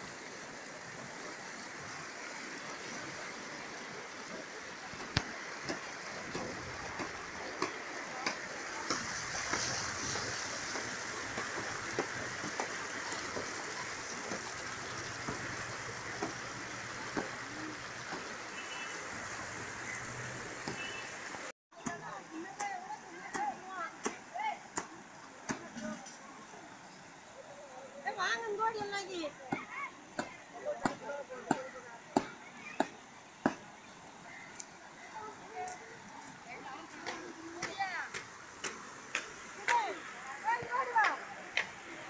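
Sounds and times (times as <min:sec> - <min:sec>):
river water rushing over rocks: 0:00.0 - 0:42.0.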